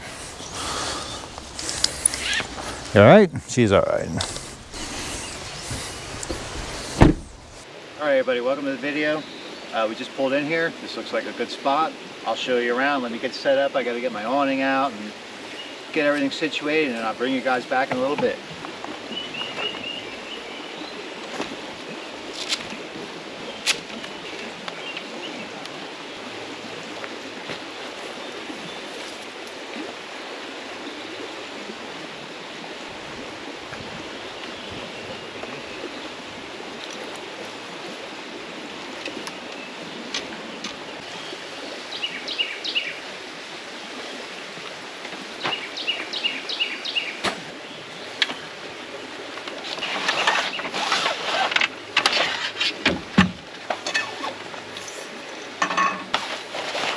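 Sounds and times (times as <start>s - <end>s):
water washing: 0.0s - 7.6s
sharp knocks: 5.6s - 7.6s.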